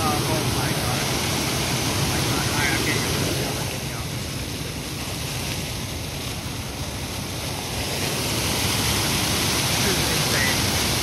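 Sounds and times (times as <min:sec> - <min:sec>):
water jet rushing: 0:00.0 - 0:11.0.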